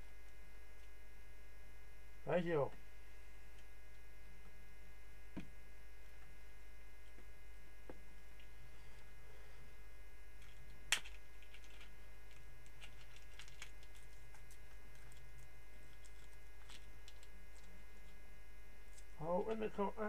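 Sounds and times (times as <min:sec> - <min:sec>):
steady low hum: 0:00.0 - 0:20.0
cardboard package being opened: 0:10.4 - 0:17.7.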